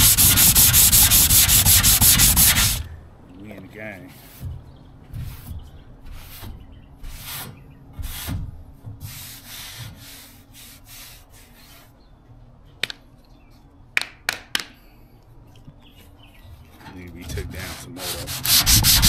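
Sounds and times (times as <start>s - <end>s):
sandpaper rubbing on car panel: 0.0s - 2.8s, 17.5s - 19.0s.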